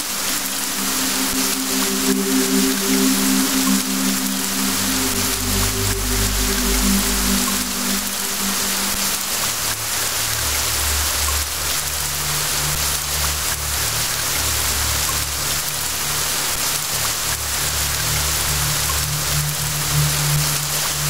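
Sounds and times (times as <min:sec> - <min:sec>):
low held musical notes: 0:00.0 - 0:11.1
steady rain: 0:00.0 - 0:21.0.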